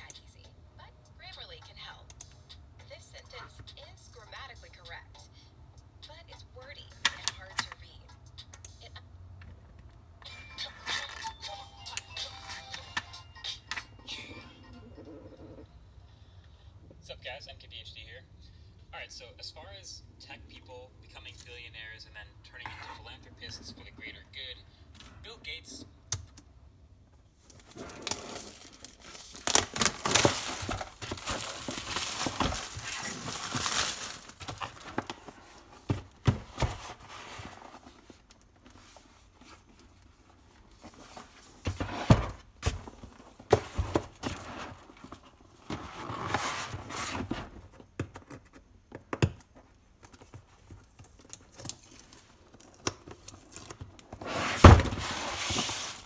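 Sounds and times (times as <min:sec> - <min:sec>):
packaging rustling and crinkling: 0:27.4 - 0:41.6, 0:50.1 - 0:56.0.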